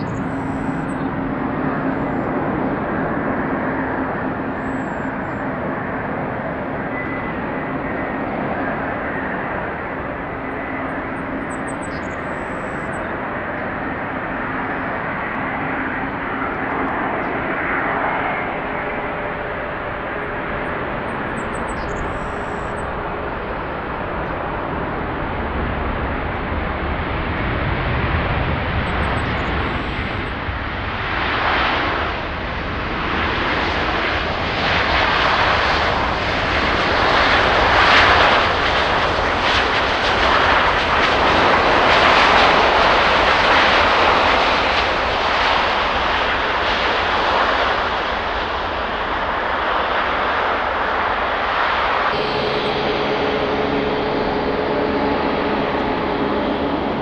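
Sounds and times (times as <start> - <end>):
jet engines rushing: 0.0 - 57.0.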